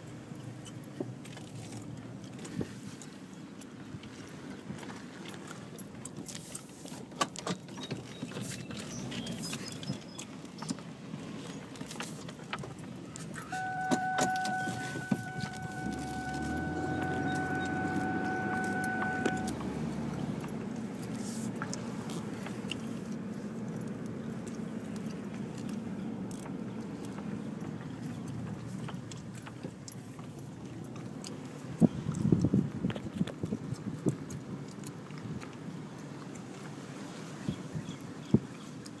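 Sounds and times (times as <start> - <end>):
car engine and road hum: 0.0 - 39.0
steady electronic tone: 13.5 - 19.9.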